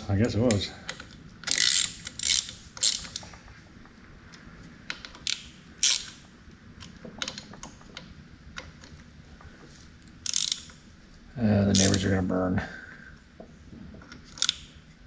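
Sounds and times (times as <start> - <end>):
ratchet wrench clicking: 0.9 - 3.2, 4.9 - 6.2, 10.2 - 10.8, 14.3 - 14.7.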